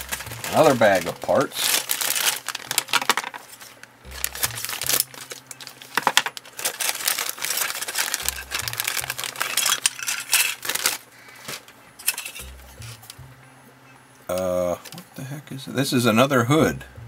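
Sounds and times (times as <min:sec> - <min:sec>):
background music with bass: 0:00.0 - 0:02.1, 0:04.0 - 0:06.7, 0:08.0 - 0:10.2, 0:12.3 - 0:17.0
plastic bag crinkling: 0:00.0 - 0:13.2
plastic parts clicking: 0:02.0 - 0:13.2.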